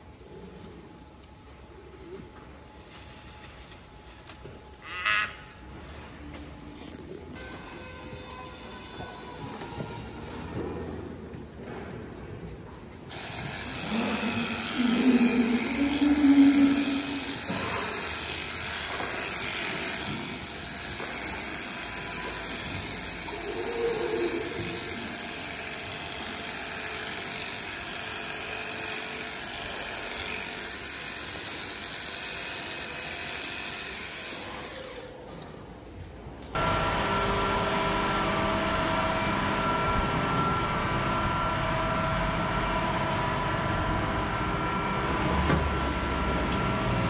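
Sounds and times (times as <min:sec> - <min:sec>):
machine running: 0:13.1 - 0:35.3, 0:36.6 - 0:47.0
thin high whine: 0:13.7 - 0:18.6.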